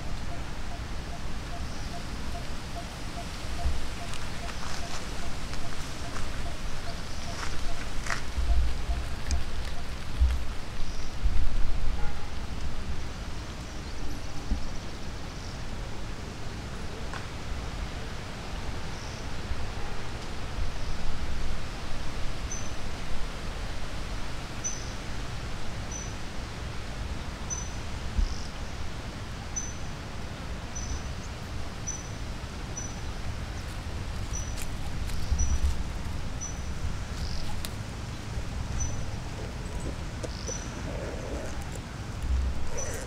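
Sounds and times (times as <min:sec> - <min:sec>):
wind rumbling on microphone: 0:00.0 - 0:16.6, 0:33.1 - 0:43.0.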